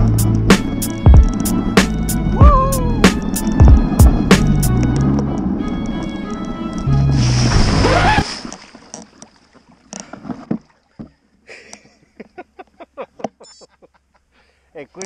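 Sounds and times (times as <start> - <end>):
background music: 0.0 - 8.2
bike wheel splashing into puddle: 7.2 - 9.1.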